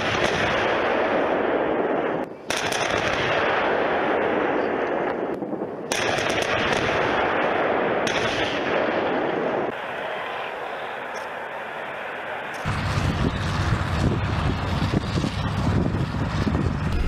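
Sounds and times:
tank gunfire: 0:00.0 - 0:09.7.

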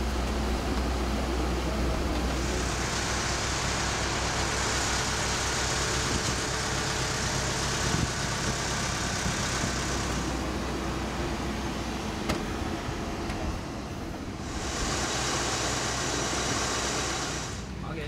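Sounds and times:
engine hum: 0:00.0 - 0:18.0
high hiss: 0:14.3 - 0:17.9.

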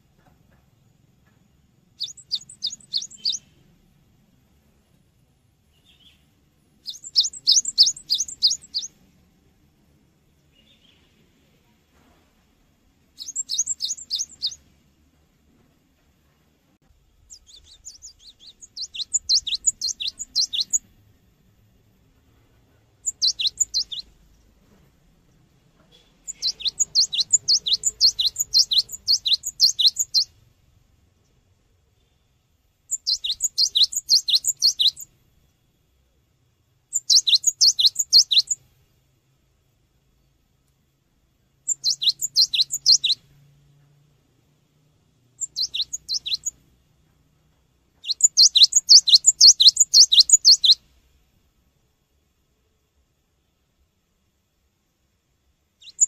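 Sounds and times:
bird singing sharp high notes: 0:02.0 - 0:03.6, 0:06.8 - 0:09.0, 0:13.2 - 0:14.6, 0:17.3 - 0:20.9, 0:23.0 - 0:24.1, 0:26.0 - 0:30.3, 0:32.9 - 0:35.1, 0:36.9 - 0:38.6, 0:41.7 - 0:43.2, 0:45.4 - 0:46.6, 0:48.0 - 0:50.8.

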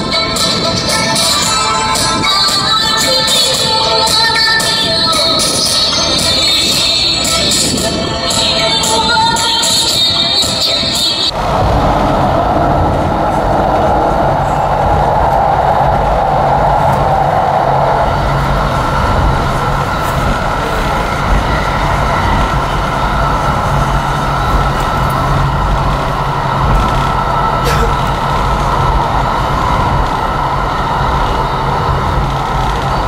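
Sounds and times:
vehicle cabin rumble: 0:08.6 - 0:33.0.

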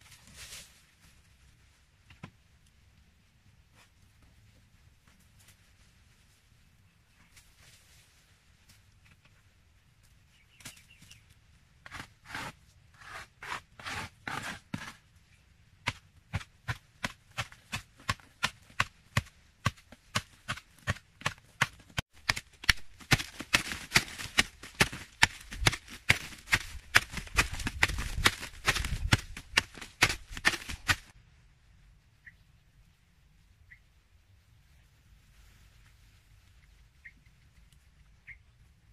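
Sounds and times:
hand tool chipping earth wall: 0:11.8 - 0:15.1, 0:15.8 - 0:31.1
footsteps on dry dirt: 0:15.9 - 0:31.1.

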